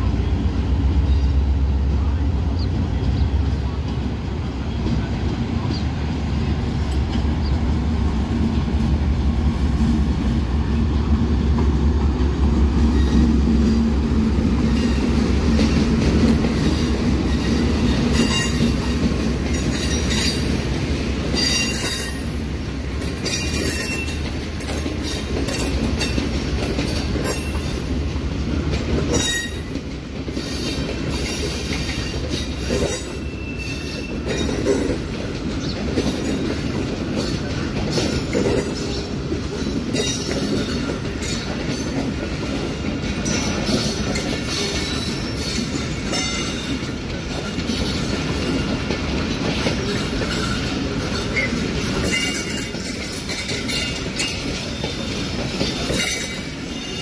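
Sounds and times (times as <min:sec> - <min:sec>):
diesel locomotive engine hum: 0:00.0 - 0:57.0
wheels clicking over rail joints: 0:03.1 - 0:57.0
wheels squealing: 0:29.1 - 0:37.4.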